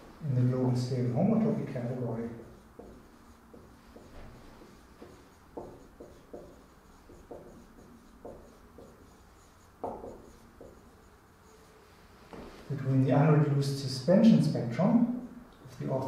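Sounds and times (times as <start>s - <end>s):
pen or chalk strokes on board: 1.4s - 12.5s.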